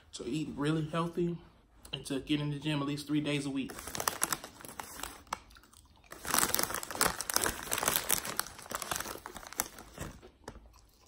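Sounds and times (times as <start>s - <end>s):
plastic chip bag crinkling: 3.6s - 11.0s.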